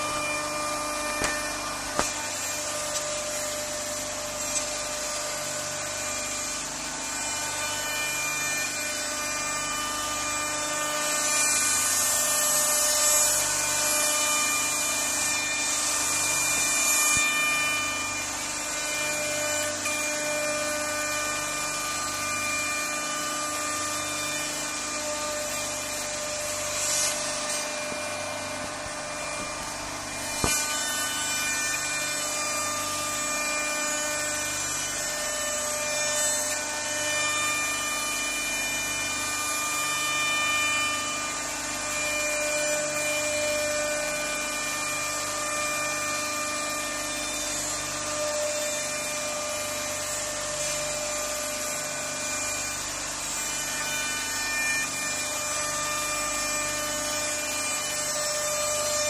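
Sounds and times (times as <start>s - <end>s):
router spindle high whine: 0.0s - 59.0s
hiss of wood cutting: 25.6s - 31.9s.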